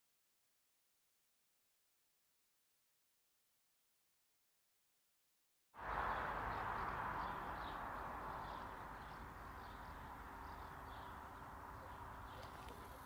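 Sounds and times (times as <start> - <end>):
steady outdoor hiss: 5.8 - 13.0
faint bird chirps: 6.1 - 13.0.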